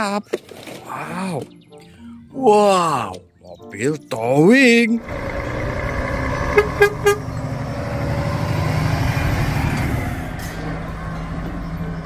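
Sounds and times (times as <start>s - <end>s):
truck engine rumbling past: 5.0s - 12.0s
horn short toots: 6.5s - 7.4s.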